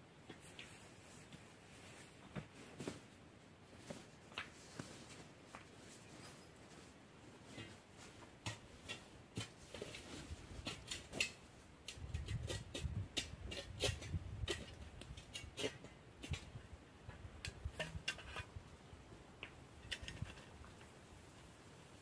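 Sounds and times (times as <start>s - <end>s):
hands handling things: 0.2s - 12.9s.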